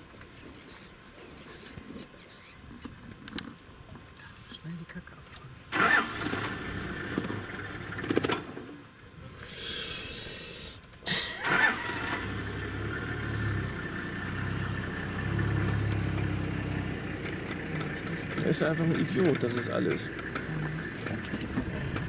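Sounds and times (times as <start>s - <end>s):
vehicle engine starting and idling: 5.7s - 8.8s, 11.1s - 22.0s.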